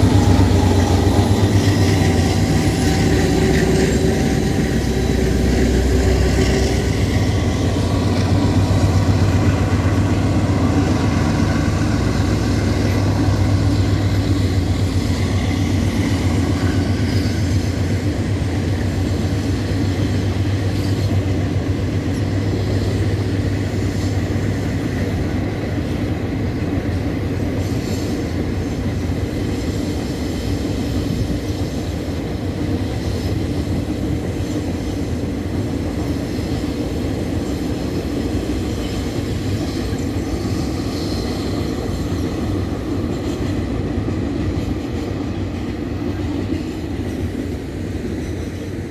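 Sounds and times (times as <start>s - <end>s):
freight train rumbling over viaduct: 0.0s - 48.9s.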